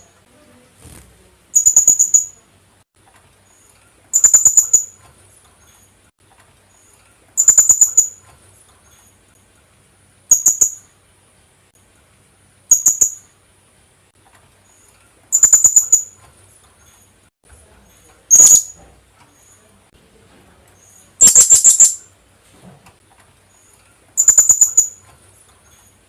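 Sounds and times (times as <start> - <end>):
parrot calling shrilly: 18.3 - 18.8, 21.2 - 22.0.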